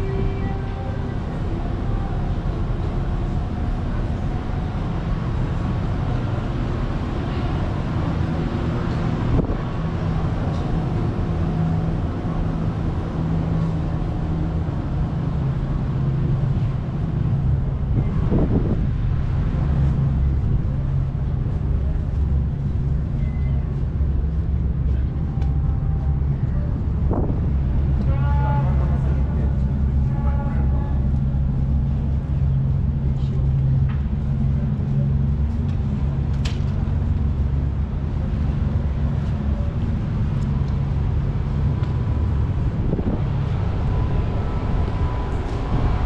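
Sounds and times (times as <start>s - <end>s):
low engine drone: 0.0s - 46.0s
wind on microphone: 14.6s - 22.5s, 24.9s - 30.6s, 40.0s - 46.0s.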